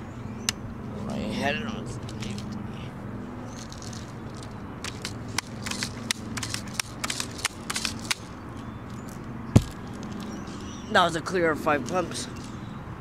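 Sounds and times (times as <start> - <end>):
air rifle pump clacking: 3.6 - 8.3.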